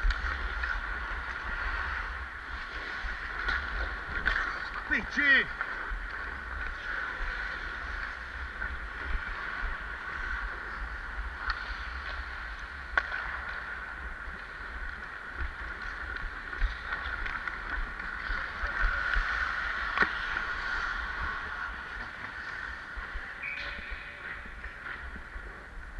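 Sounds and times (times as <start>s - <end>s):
skate blades scraping ice: 5.6s - 25.7s.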